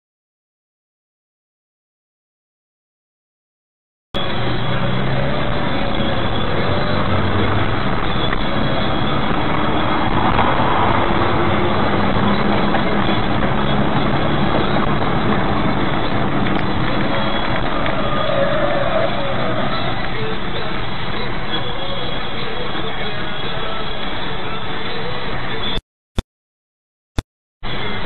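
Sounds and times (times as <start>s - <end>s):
car engine hum: 4.2s - 25.8s
tyre and road noise: 4.2s - 25.8s, 27.6s - 28.0s.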